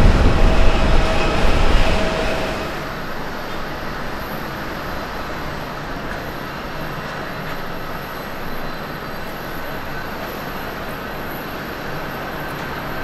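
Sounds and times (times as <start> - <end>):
distant jet engines idling: 0.0 - 3.6.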